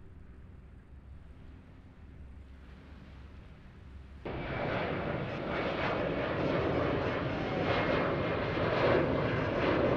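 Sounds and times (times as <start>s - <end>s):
jet airliner engines roaring: 4.2s - 9.9s.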